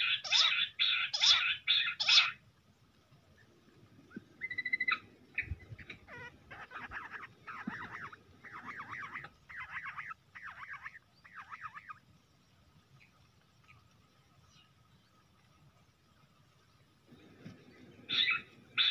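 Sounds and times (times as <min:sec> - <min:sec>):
quail whistled calls: 0:04.4 - 0:12.0, 0:18.1 - 0:18.9.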